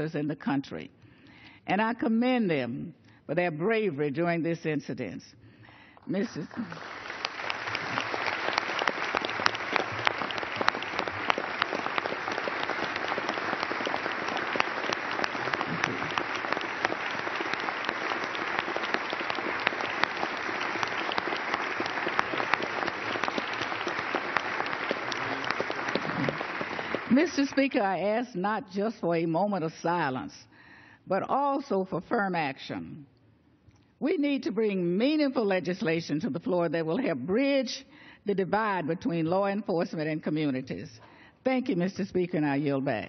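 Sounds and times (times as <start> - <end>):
crowd applauding: 6.3 - 28.0.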